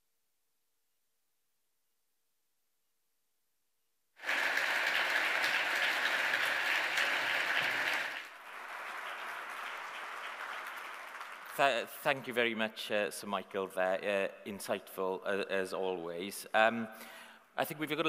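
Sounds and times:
large audience applauding: 4.2s - 11.9s.

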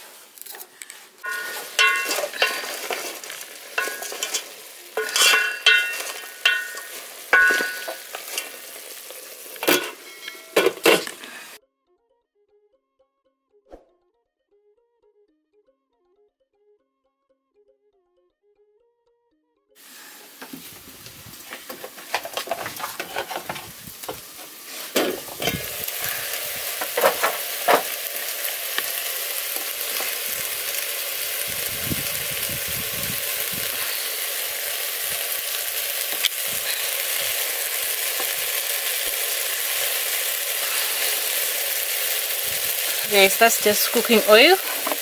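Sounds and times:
meat sizzling in a pot: 0.0s - 11.6s, 19.8s - 45.0s
pot and utensils clattering: 1.2s - 11.6s, 21.6s - 28.5s.

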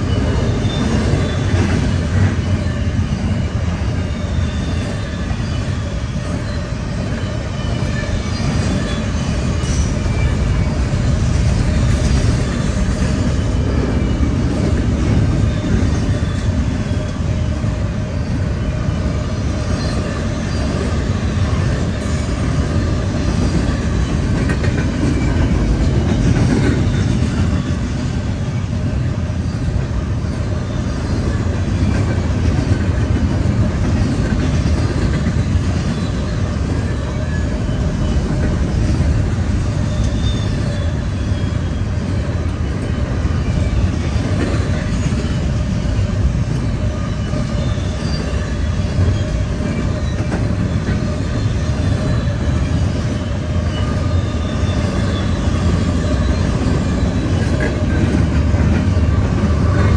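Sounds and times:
wheel squeal: 0.0s - 18.9s, 34.0s - 59.9s
train wheels rumbling on rail: 0.0s - 59.9s.

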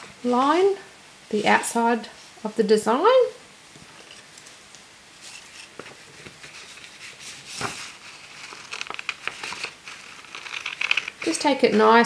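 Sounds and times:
paper rustling and crinkling: 5.2s - 12.0s.

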